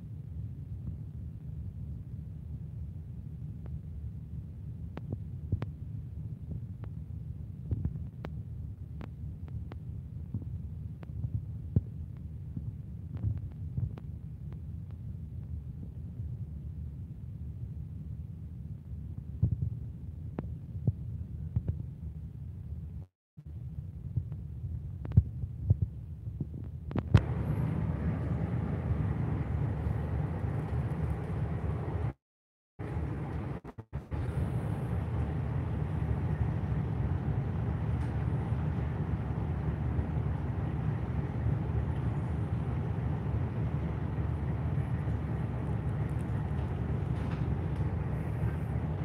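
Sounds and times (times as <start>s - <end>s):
wind noise on microphone: 0.0s - 32.2s
boat engine rumbling: 27.2s - 32.2s, 32.8s - 49.0s.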